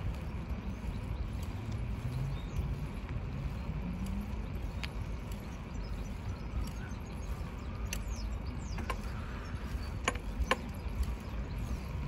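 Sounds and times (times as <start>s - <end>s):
tyres rolling on asphalt: 0.0s - 12.0s
sharp clicks: 7.8s - 9.2s, 9.8s - 11.4s.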